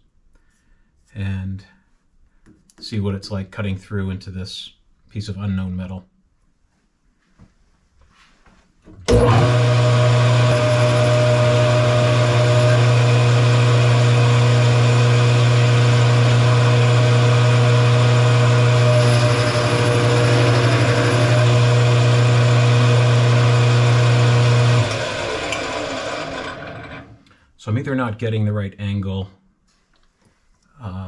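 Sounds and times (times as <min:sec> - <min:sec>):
metal lathe running: 0:09.1 - 0:27.2.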